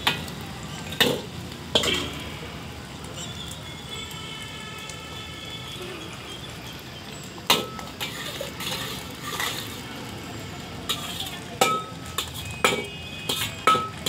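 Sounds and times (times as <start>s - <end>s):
eggs sizzling: 0.0s - 14.0s
metal spatula clanking on pan: 1.0s - 2.2s, 7.5s - 9.8s, 10.9s - 14.0s.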